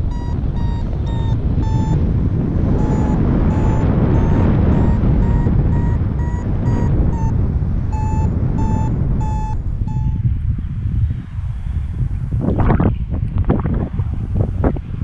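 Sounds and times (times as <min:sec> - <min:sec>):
variometer beeping: 0:00.0 - 0:10.4
wind noise on microphone: 0:00.0 - 0:15.0.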